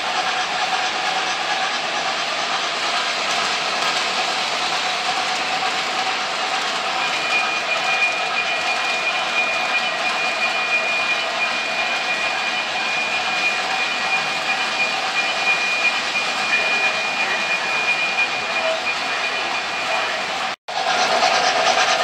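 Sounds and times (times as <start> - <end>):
model train wheels rumbling: 0.0 - 22.0
high whine: 6.8 - 20.6.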